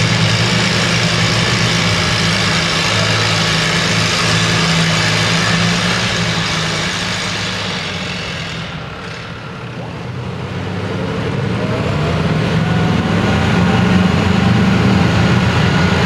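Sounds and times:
tractor engine idling: 0.0 - 11.2.

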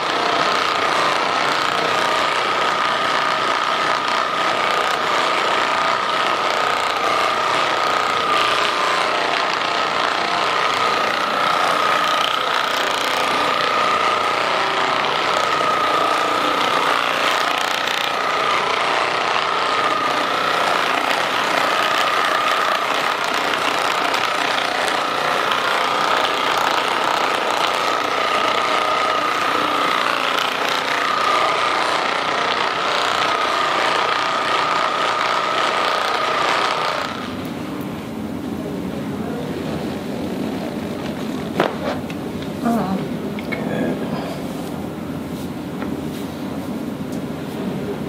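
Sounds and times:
massage gun buzzing: 0.0 - 38.4, 39.6 - 47.0.

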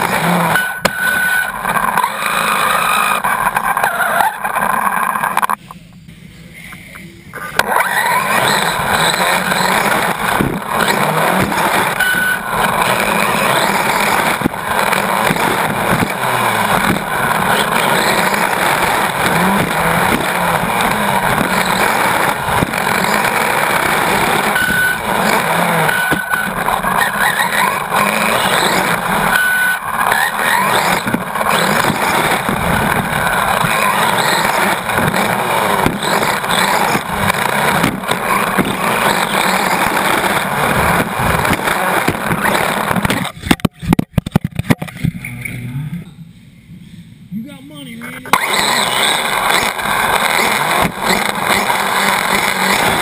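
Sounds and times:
electric motor whine: 0.0 - 3.8, 7.5 - 43.4, 48.3 - 53.0
drivetrain and tyre noise: 0.0 - 53.0
chassis knocks over bumps: 8.4 - 45.2, 48.3 - 53.0.

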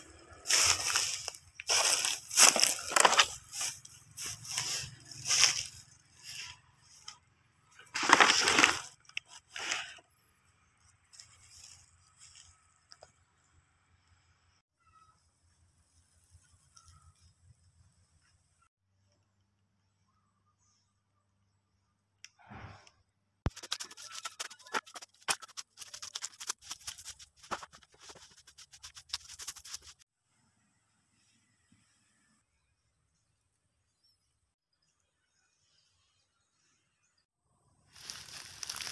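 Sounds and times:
footsteps crunching through dry leaves: 0.0 - 7.0, 7.8 - 8.9, 37.9 - 38.9
dry sheath crackling and crinkling: 0.4 - 10.0, 23.5 - 30.0, 37.9 - 38.9.

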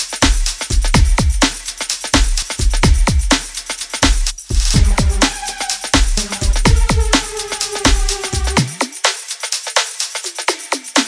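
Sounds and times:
drum and bass music: 0.0 - 11.0
hissing swell: 4.6 - 8.8.

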